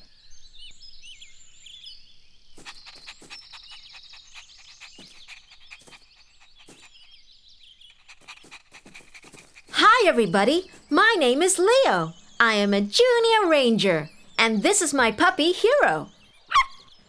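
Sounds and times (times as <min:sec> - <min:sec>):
birds chirping and twittering: 0:00.0 - 0:17.0
high bird trill: 0:02.6 - 0:17.0.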